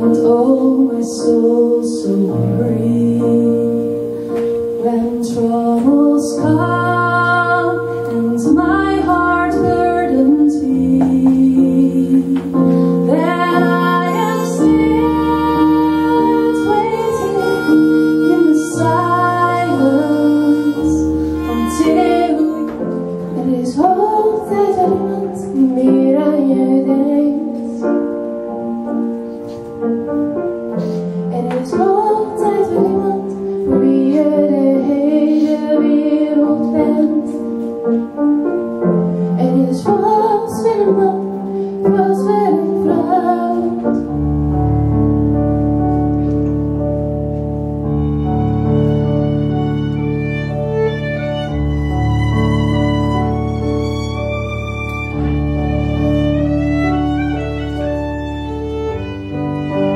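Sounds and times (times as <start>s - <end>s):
woman singing: 0.0s - 28.0s, 31.3s - 38.0s, 39.3s - 44.2s
keyboard accompaniment: 0.0s - 59.9s
piano chords: 0.0s - 59.9s.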